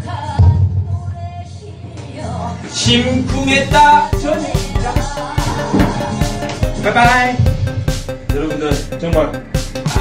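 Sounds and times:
upbeat dance backing track: 2.9 - 10.0
steady drum beat: 3.3 - 10.0.

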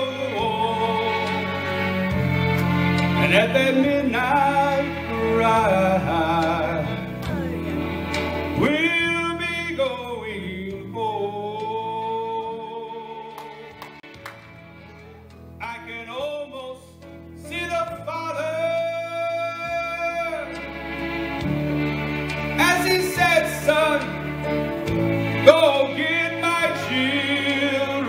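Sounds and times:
man singing into microphone: 0.0 - 1.6, 3.2 - 13.8, 15.6 - 20.6, 22.6 - 24.2, 25.3 - 28.0
instrumental accompaniment: 0.0 - 28.0.

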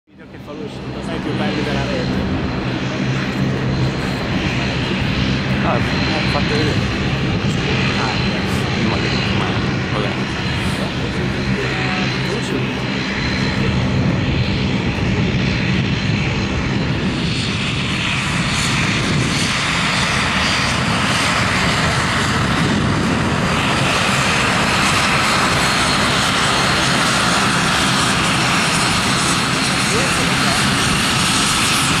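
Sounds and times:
turboprop propeller drone: 0.1 - 32.0.

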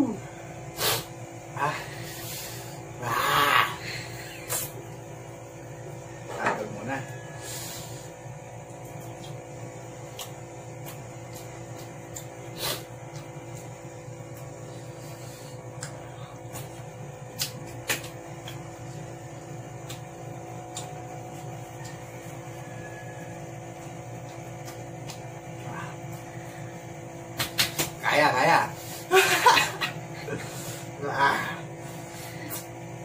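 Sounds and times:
room hum: 0.0 - 33.0
mouth chewing and smacking: 8.9 - 13.7, 15.7 - 19.1, 19.7 - 22.6.

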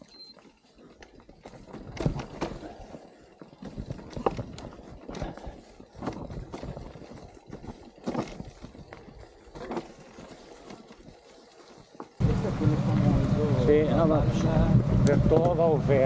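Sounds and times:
mountain bike clattering over rocks: 0.0 - 12.2.

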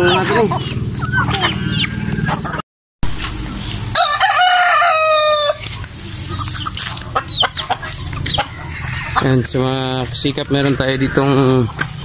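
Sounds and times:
chickens calling: 0.0 - 2.6, 3.2 - 12.0
rooster crowing: 3.9 - 5.6.

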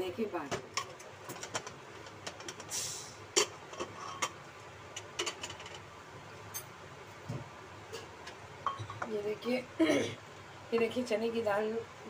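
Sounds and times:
short hiss: 2.7 - 3.2.

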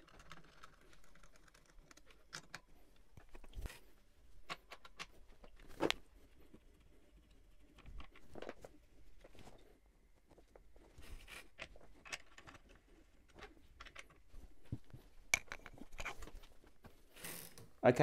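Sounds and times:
hand tools clicking and knocking: 15.3 - 16.4.

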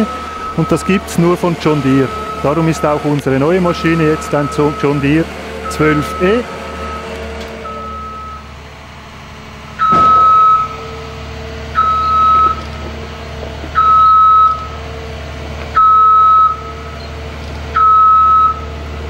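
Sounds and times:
reversing alarm beeps: 0.0 - 1.0, 1.7 - 3.0, 3.6 - 8.5, 9.8 - 11.0, 11.7 - 12.8, 13.7 - 14.8, 15.8 - 17.2, 17.8 - 18.7
diesel engine running: 0.0 - 19.0.

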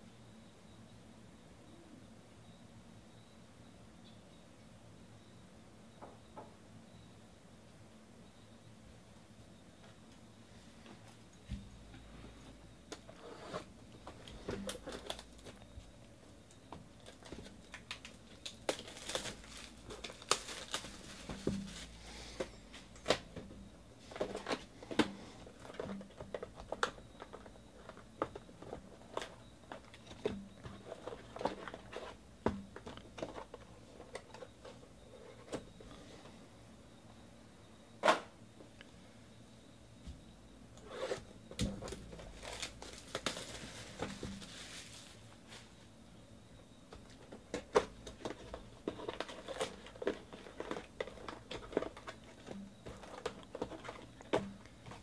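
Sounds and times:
plastic wrap crinkling and tearing: 17.0 - 22.0, 41.9 - 45.2.

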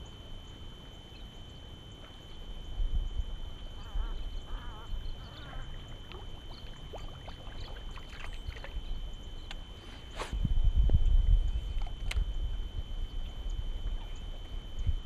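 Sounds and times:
ducks quacking: 3.8 - 5.8
light ticks: 9.4 - 9.6
low rumble: 10.3 - 15.0.

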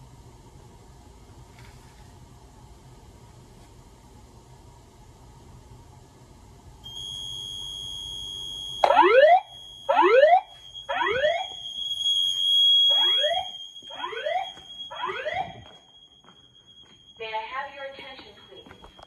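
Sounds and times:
steady high-pitched tone: 6.8 - 19.0
whooping alarm sweeps: 6.8 - 19.0.

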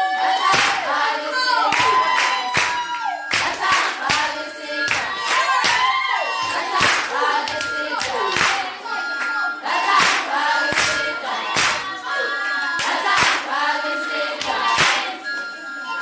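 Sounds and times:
group of voices singing: 0.0 - 16.0
clapping: 0.5 - 0.8, 1.7 - 4.3, 4.9 - 5.9, 6.8 - 9.4, 10.0 - 11.0, 11.6 - 11.8, 12.8 - 13.4, 14.4 - 15.1.

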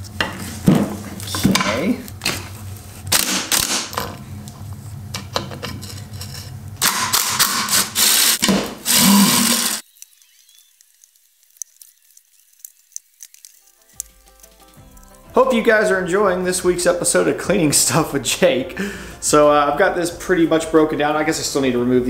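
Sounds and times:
hand tools clicking and scraping: 5.1 - 15.0
cordless driver running: 6.8 - 10.9.

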